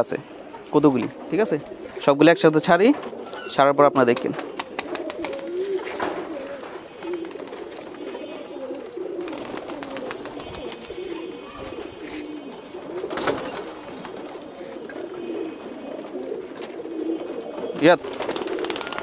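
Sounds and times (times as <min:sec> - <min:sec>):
pigeons cooing: 0:00.0 - 0:19.0
wings flapping: 0:04.0 - 0:15.2, 0:17.5 - 0:19.0.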